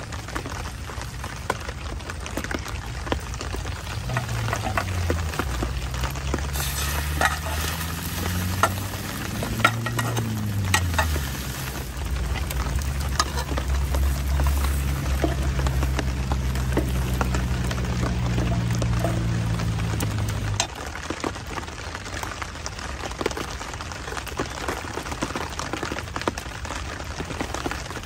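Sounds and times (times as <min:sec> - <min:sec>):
sandwich sizzling in pan: 0:00.0 - 0:21.0
knife scraping and tapping pan: 0:06.7 - 0:11.5, 0:13.1 - 0:15.7.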